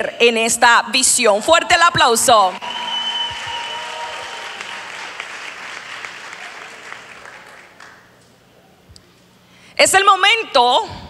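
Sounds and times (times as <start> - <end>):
audience applauding: 2.6 - 8.3.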